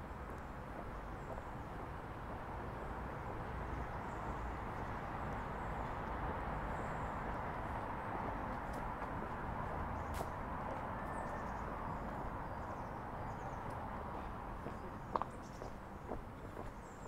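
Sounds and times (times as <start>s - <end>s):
distant city traffic hum: 0.0s - 17.0s
footsteps on path: 8.2s - 11.3s, 14.1s - 16.8s
small birds chirping: 11.2s - 17.0s.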